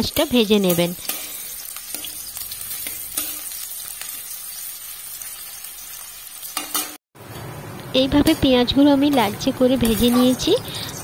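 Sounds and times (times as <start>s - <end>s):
onions sizzling in hot oil: 0.0s - 11.0s
metal spatula scraping: 0.7s - 4.6s, 9.1s - 11.0s.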